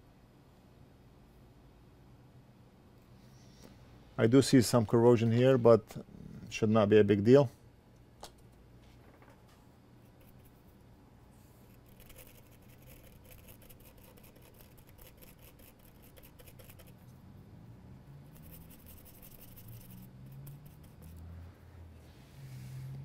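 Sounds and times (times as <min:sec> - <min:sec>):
small brush scrubbing: 0:10.1 - 0:10.8, 0:11.4 - 0:17.2, 0:18.2 - 0:21.4.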